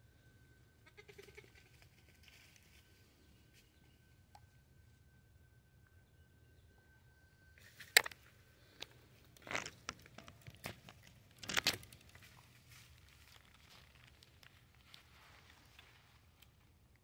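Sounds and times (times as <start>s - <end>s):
dry leaves crunching under hooves: 11.5s - 15.8s.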